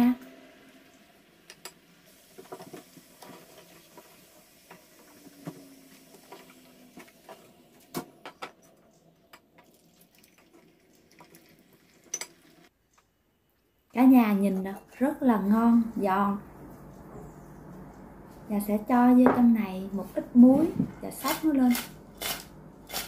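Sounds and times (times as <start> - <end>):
fries sizzling in oil: 0.0 - 7.8.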